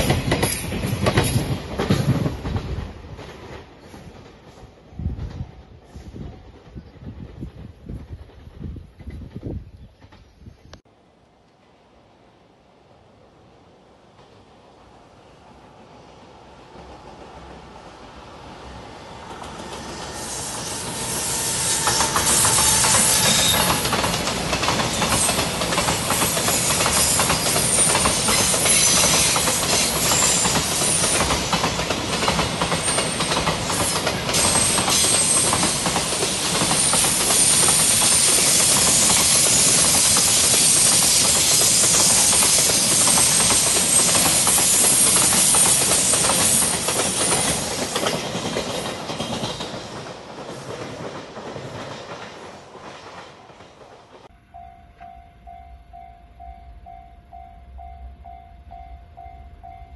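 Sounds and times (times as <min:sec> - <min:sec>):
train wheels clattering over rails: 0:00.0 - 0:10.4, 0:19.1 - 0:54.3.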